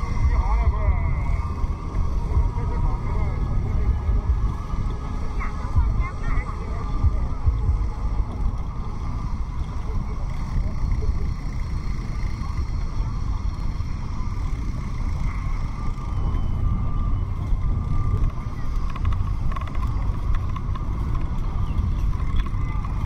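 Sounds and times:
bicycle road noise: 0:00.0 - 0:23.0
wind rumble on microphone: 0:00.0 - 0:23.0.

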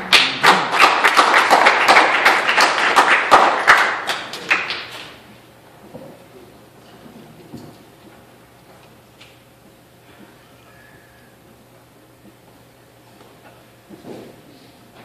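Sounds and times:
congregation clapping: 0:00.0 - 0:05.2.

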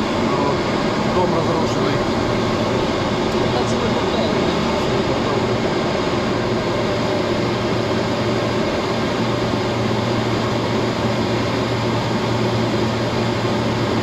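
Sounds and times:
constant low hum: 0:00.0 - 0:14.0
jet engines droning: 0:00.0 - 0:14.0.

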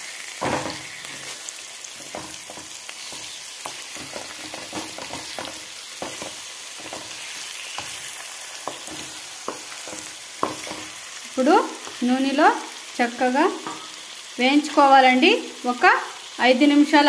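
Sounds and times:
chicken sizzling in hot oil: 0:00.0 - 0:17.0
wooden spatula tapping and scraping: 0:00.4 - 0:11.0, 0:11.7 - 0:12.1.

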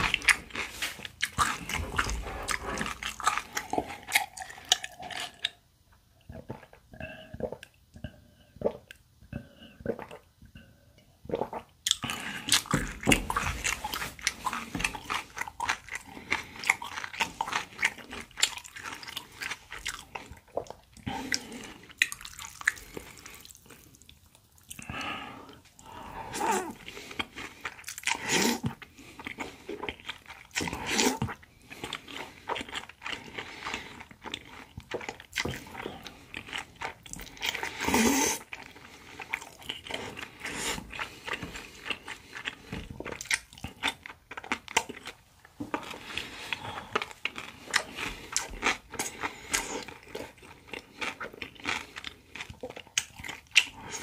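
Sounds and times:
wet chewing and crunching: 0:00.0 - 0:05.6, 0:11.3 - 0:54.0
noodle slurps: 0:36.6 - 0:42.7.

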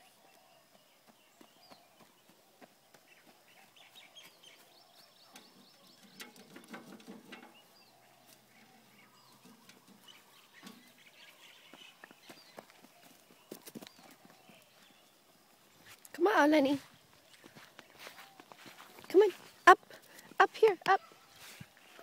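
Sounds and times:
faint birds chirping: 0:00.0 - 0:22.0
light taps and rustles: 0:05.3 - 0:08.6.

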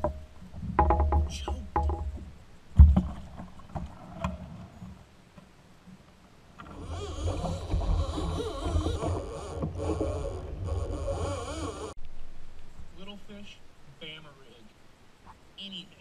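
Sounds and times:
heavy thump on kayak: 0:00.7 - 0:03.4.

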